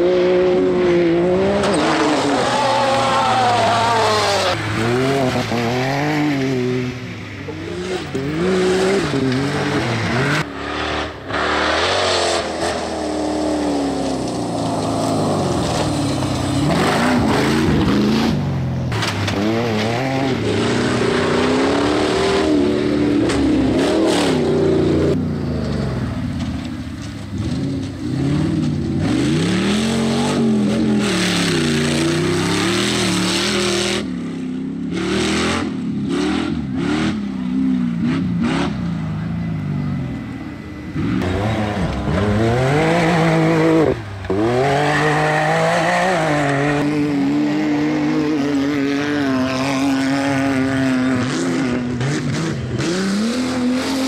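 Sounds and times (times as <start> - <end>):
off-road vehicle engines revving: 0.0 - 54.0.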